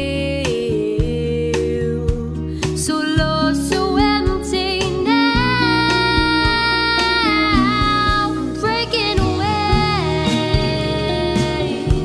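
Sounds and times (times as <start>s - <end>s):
woman singing: 0.0s - 12.0s
strummed acoustic guitar: 4.0s - 12.0s.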